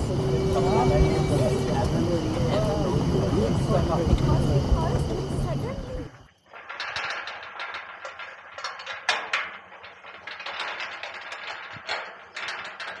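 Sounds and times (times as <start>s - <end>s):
metal gate bolt rattling: 6.5s - 13.0s.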